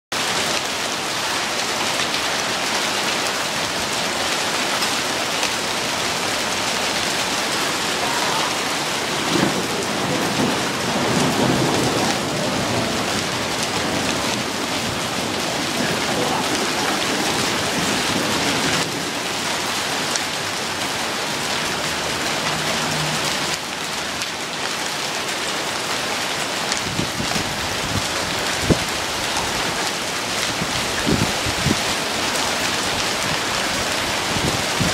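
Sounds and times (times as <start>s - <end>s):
heavy rain pouring: 0.1s - 34.9s
low rumble of thunder: 8.0s - 19.2s.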